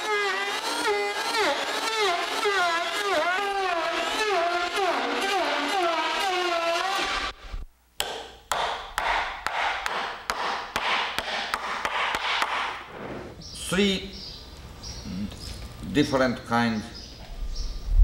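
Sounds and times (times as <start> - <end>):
electric hand planer cutting wood: 0.0 - 7.6
hammer striking chisel into wood: 8.0 - 12.8.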